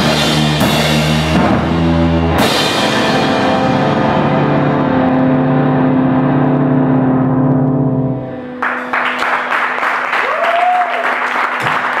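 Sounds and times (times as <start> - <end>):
electric guitar chord ringing: 2.4 - 9.7
audience applause: 8.6 - 12.0.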